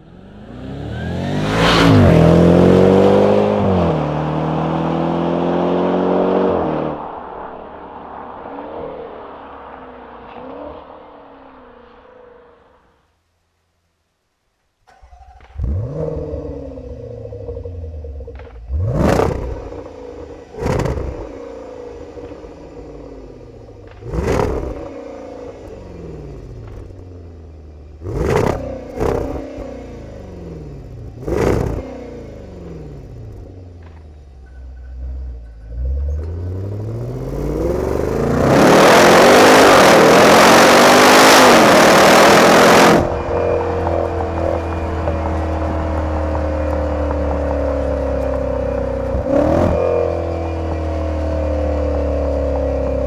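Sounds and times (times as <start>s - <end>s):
car accelerating hard: 0.0s - 12.9s, 14.9s - 34.0s, 35.6s - 53.0s
car engine revving and idling: 0.0s - 12.9s, 14.9s - 53.0s
road noise: 0.0s - 53.0s.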